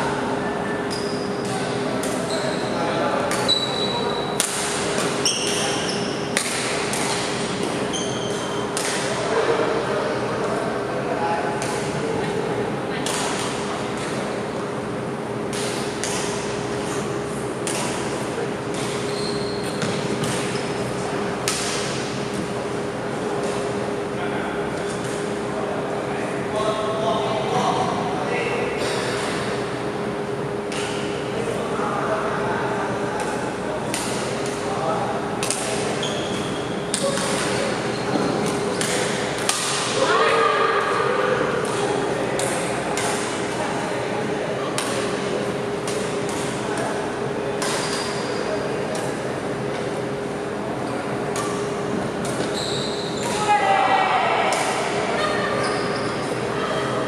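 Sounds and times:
steady hum: 0.0s - 57.0s
rackets striking shuttlecock: 4.4s - 7.8s, 8.4s - 9.2s, 15.5s - 16.6s, 17.6s - 19.0s, 21.4s - 22.4s, 38.4s - 40.0s, 44.7s - 46.9s, 47.6s - 48.3s, 51.3s - 52.6s
high squeak: 7.9s - 8.6s, 52.5s - 53.5s.

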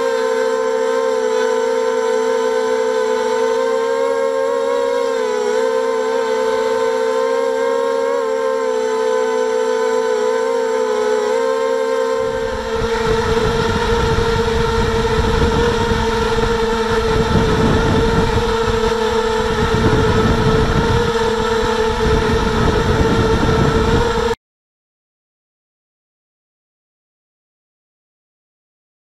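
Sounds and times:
motors and propellers whining: 0.0s - 24.4s
rough low rumble: 12.2s - 24.3s.

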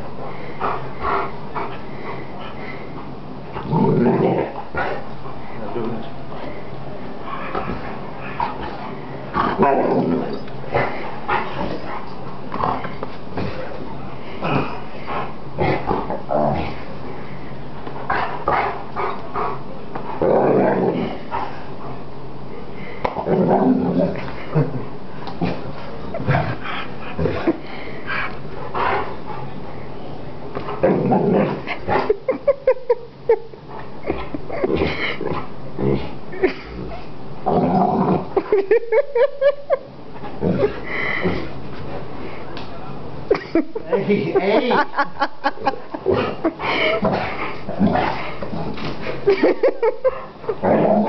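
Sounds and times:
dog growling: 3.5s - 5.1s, 7.4s - 13.7s, 14.3s - 16.9s, 20.2s - 21.5s, 30.7s - 32.2s, 34.5s - 38.5s, 46.0s - 51.0s.

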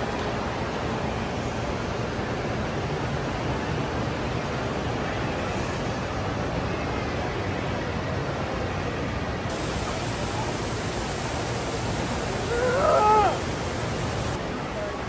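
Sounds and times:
indoor river rushing: 9.5s - 14.6s
person exclaiming: 12.4s - 13.7s.

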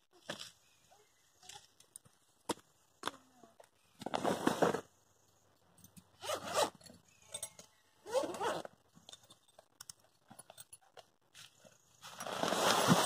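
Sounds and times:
light clicks and rustling of gear: 5.7s - 11.8s
zip being pulled: 6.2s - 6.8s, 8.0s - 8.7s.

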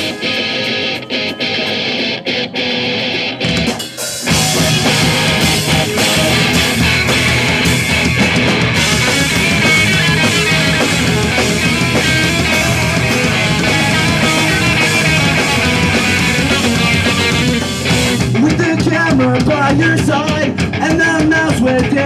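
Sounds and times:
punk rock band playing: 0.0s - 22.0s
drum hits: 3.4s - 19.2s.

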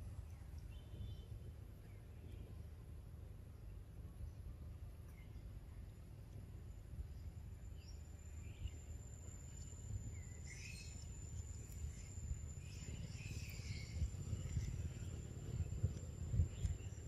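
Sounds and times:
faint chirps: 5.0s - 17.0s
high-pitched insect drone: 7.1s - 17.0s
low rumble: 8.2s - 17.0s.

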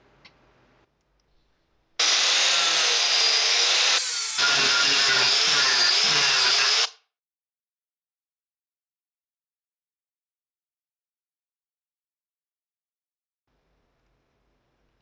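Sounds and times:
angle grinder grinding wood: 2.0s - 6.9s.

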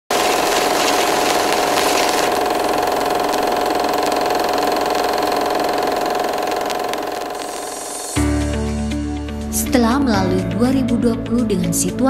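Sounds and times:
small machine rattling and humming: 0.1s - 8.2s.

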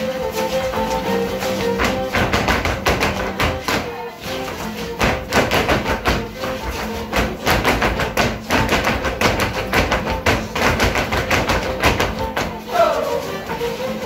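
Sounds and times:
live string music: 0.0s - 14.0s
shoes stamping on hard floor: 1.0s - 3.9s, 4.5s - 12.7s.

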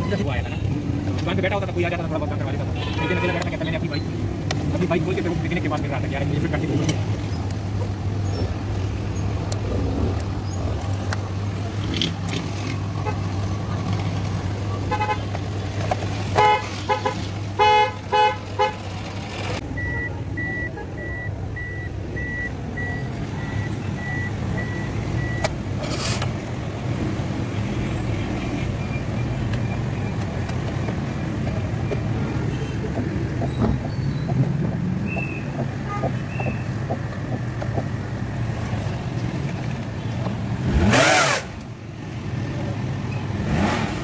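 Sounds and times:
car horn toots: 16.3s - 18.8s
dashboard warning chime beeping: 19.6s - 25.5s.

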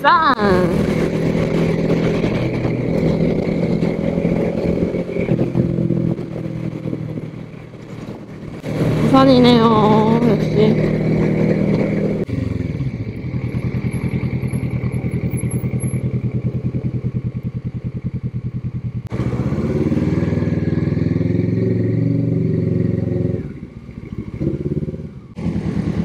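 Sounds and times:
motorcycle engine idling: 6.3s - 21.0s, 23.4s - 26.0s.

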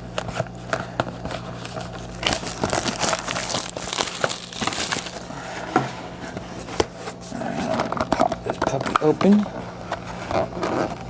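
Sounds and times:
plastic wrapping crinkling: 1.2s - 5.4s.

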